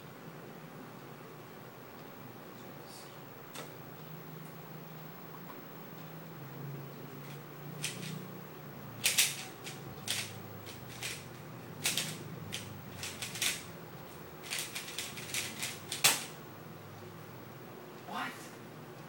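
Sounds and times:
puzzle cube plastic clicking: 9.0s - 11.2s.

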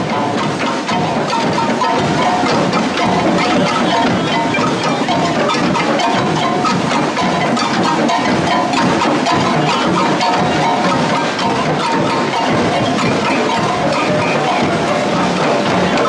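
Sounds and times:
drum and wood-block hits: 0.0s - 16.0s
ringing bell-like tones: 0.0s - 16.0s.

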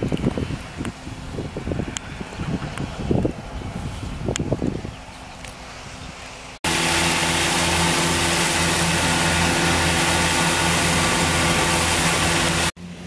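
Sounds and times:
mowers cutting grass hiss: 5.5s - 13.0s
tractor diesel engine drone: 6.6s - 13.0s.

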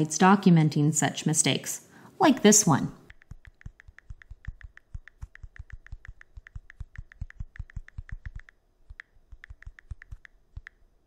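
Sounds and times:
keyboard keystroke clicks: 3.1s - 10.8s.

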